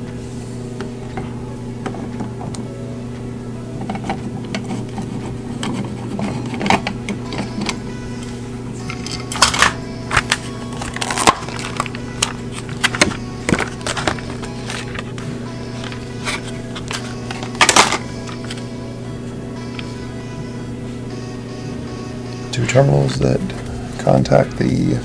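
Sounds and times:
steady low drone: 0.0 - 25.0
plastic clicks and crinkles: 9.0 - 18.6.

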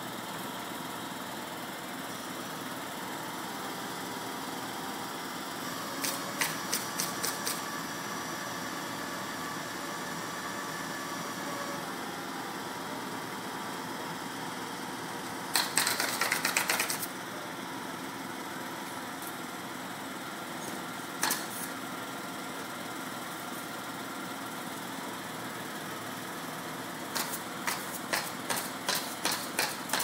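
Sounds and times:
crane engine running: 0.0 - 15.8.

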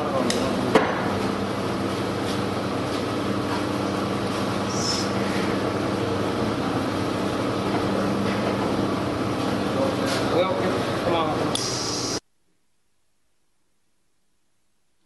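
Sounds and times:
workshop machinery humming: 0.0 - 12.3.

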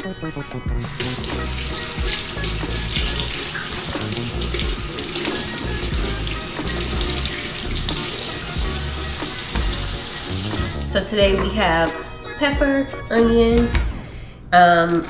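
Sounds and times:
tap running water into sink: 0.9 - 11.6.

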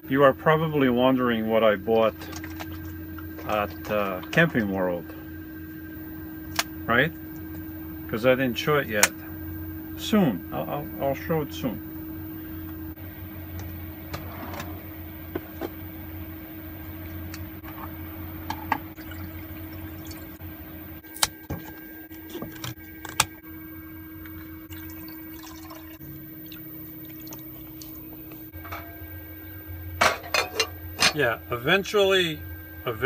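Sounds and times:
steady low hum: 0.0 - 33.0
liquid pouring into a pot: 19.0 - 20.4, 24.2 - 29.1.

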